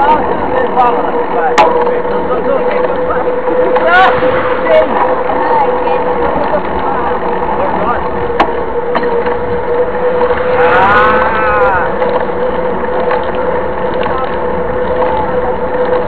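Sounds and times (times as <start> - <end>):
tyres humming on asphalt: 0.0 - 16.0
wind rushing over microphone: 2.0 - 16.0
rising and falling tone: 9.3 - 13.6.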